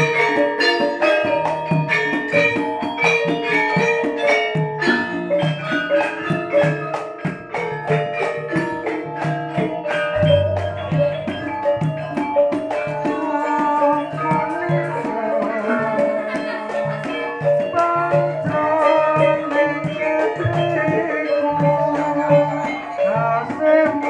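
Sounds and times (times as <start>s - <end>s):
metallophones struck: 0.0s - 23.6s.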